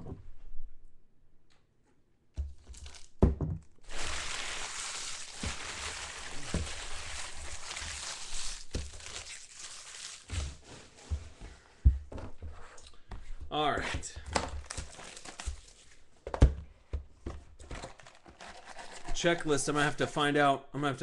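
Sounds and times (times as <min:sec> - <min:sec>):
foil wrappers crinkling and tearing: 0:02.7 - 0:03.1, 0:03.8 - 0:10.7, 0:14.6 - 0:16.0, 0:17.7 - 0:19.2.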